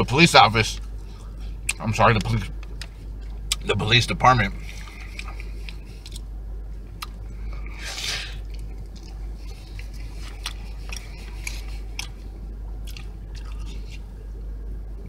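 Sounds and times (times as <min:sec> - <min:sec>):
steady low hum: 0:00.0 - 0:15.0
person chewing food: 0:04.6 - 0:06.3, 0:06.9 - 0:14.1.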